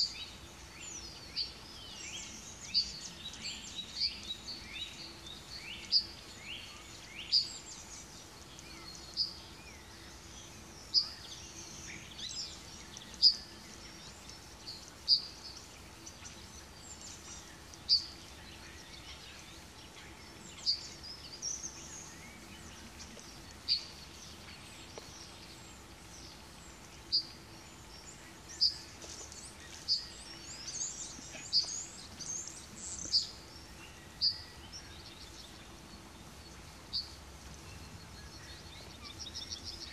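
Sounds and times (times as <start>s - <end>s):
birds twittering: 0.0s - 39.9s
songbirds chirping: 0.0s - 39.9s.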